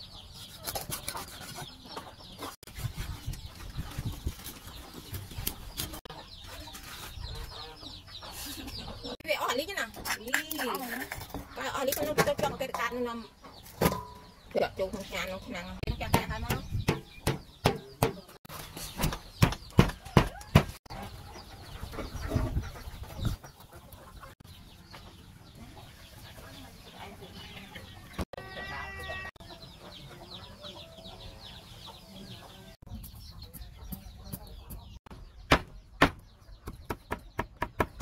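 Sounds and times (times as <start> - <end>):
stone pestle pounding in mortar: 16.1 - 18.2.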